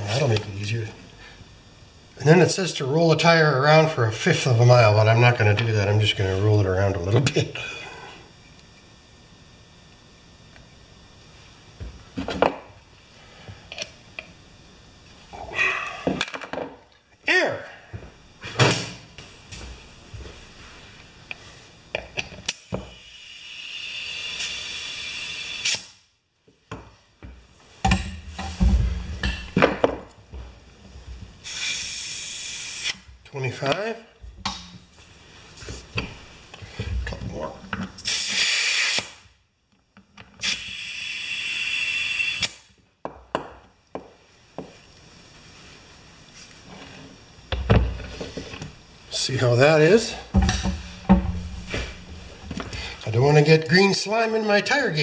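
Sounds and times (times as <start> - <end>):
compressed air hissing: 22.5 - 26.0, 31.4 - 33.1, 38.0 - 39.2, 40.4 - 42.7, 47.9 - 53.1.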